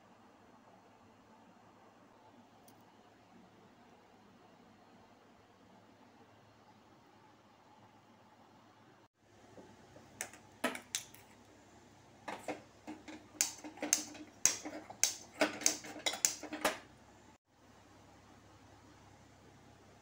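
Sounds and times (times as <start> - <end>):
metallic clicks on a pan: 12.9 - 16.8.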